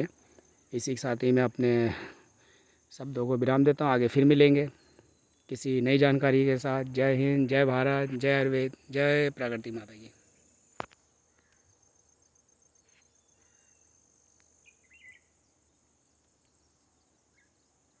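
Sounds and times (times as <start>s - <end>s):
crickets trilling: 0.0s - 18.0s.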